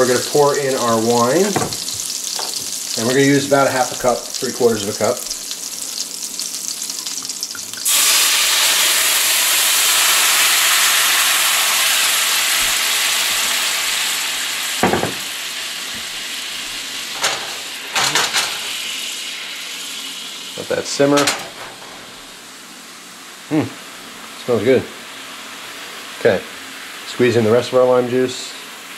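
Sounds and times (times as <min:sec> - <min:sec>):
liquid sizzling in a hot pan: 0:00.0 - 0:28.9
short knocks: 0:01.6 - 0:02.6.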